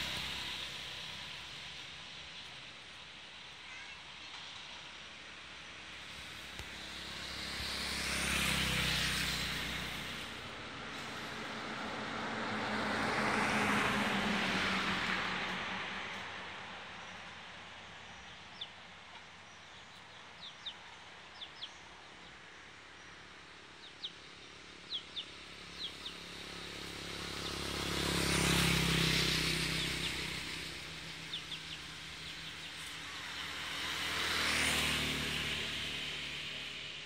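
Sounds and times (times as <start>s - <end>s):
vehicles passing by: 0.0s - 37.0s
small birds chirping: 16.8s - 36.8s.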